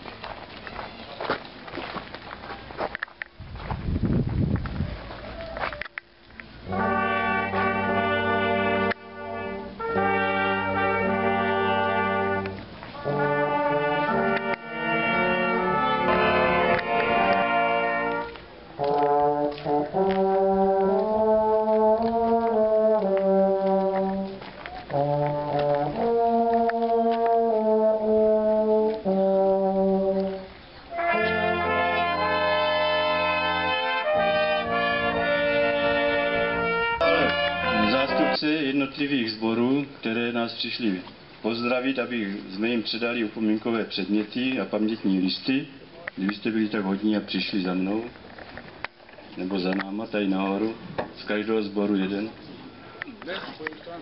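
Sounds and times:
brass ensemble playing solemn chords: 0:06.6 - 0:38.6.

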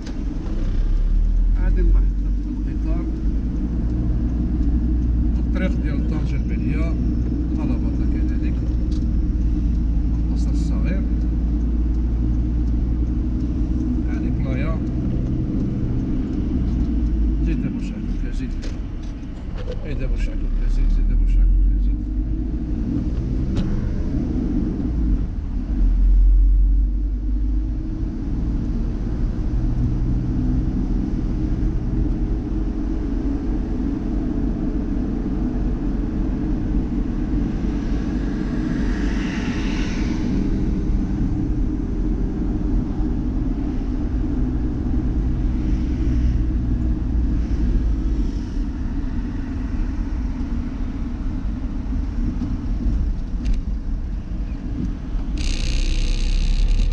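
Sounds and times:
car engine and road rumble: 0:00.0 - 0:56.9
rushing noise: 0:36.9 - 0:43.4.

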